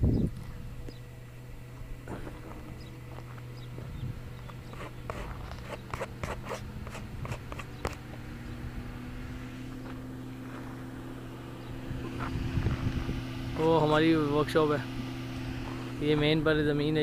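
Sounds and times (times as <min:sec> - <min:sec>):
low hum: 0:00.0 - 0:17.0
footsteps on stony dirt: 0:02.1 - 0:08.2.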